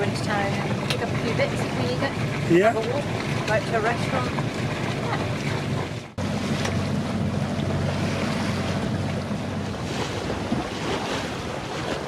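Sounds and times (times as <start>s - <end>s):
water rushing along hull: 0.0s - 12.0s
wind buffeting microphone: 0.0s - 12.0s.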